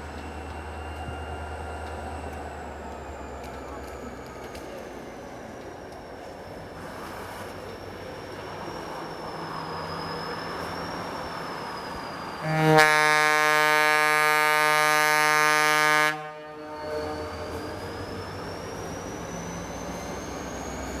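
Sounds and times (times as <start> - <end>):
diesel locomotive rumbling: 0.0 - 21.0
locomotive air horn blast: 12.4 - 17.6.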